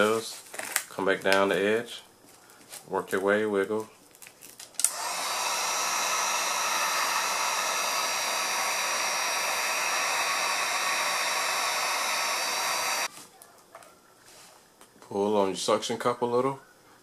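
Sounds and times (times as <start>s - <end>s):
heat gun blowing with whine: 4.8s - 13.1s.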